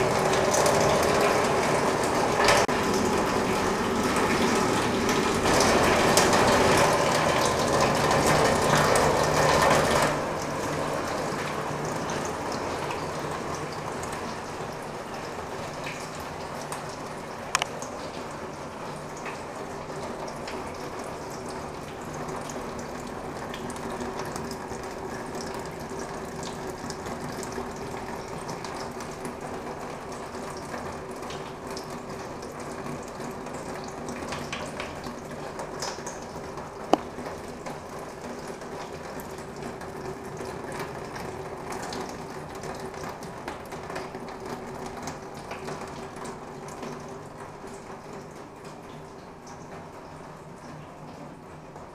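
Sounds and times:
low pump hum: 0:00.0 - 0:51.9
water dripping on metal roof: 0:00.0 - 0:51.9.

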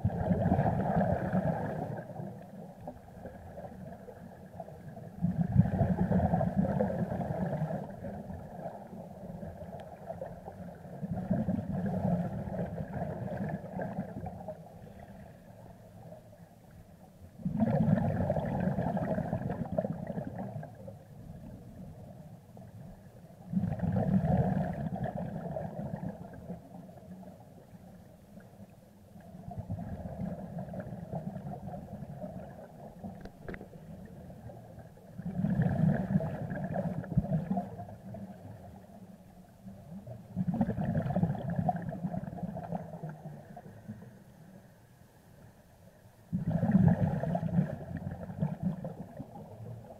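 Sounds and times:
underwater bubbles gurgling: 0:00.0 - 0:44.6, 0:45.4 - 0:49.9.

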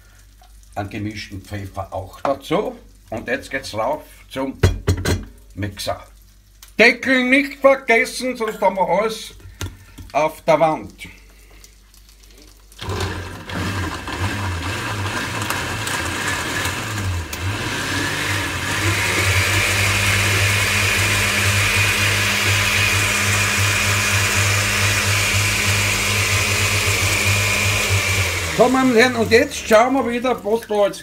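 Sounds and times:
blender running: 0:12.8 - 0:30.2.

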